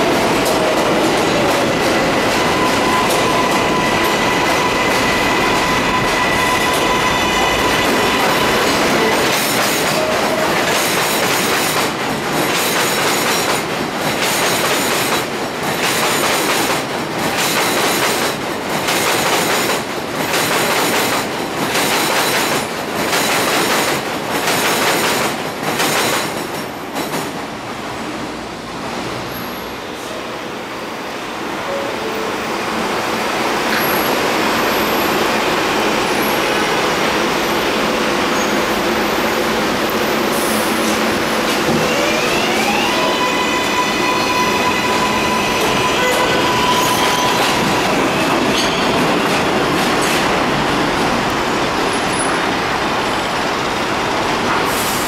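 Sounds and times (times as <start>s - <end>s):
train wheels clacking: 0.0s - 27.5s, 44.6s - 51.4s
train wheels rushing on rail: 0.0s - 31.7s, 32.6s - 55.0s.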